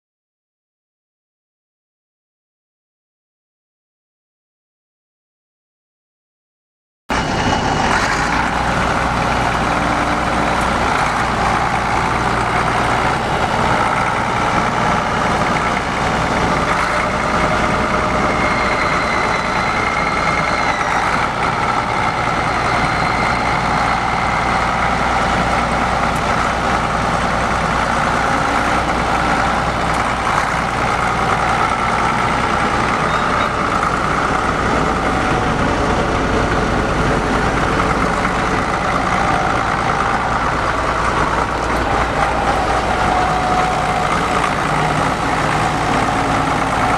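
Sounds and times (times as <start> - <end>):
diesel tractor engine running: 7.1 - 46.9.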